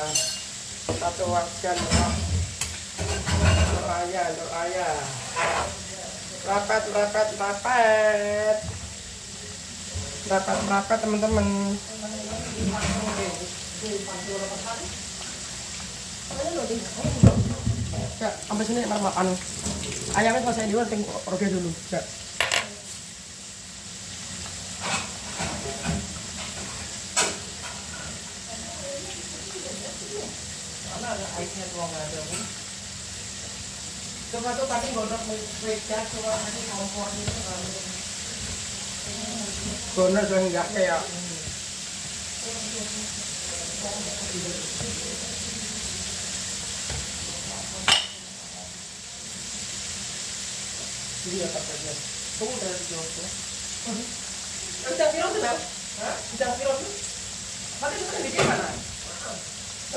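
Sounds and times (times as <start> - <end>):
metal skimmer clinking on wok: 0.0 - 0.5
chicken sizzling in oil: 0.0 - 59.9.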